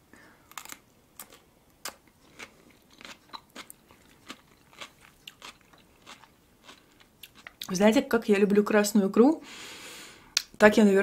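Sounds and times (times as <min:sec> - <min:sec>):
cucumber crunching as chewed: 0:00.5 - 0:07.7.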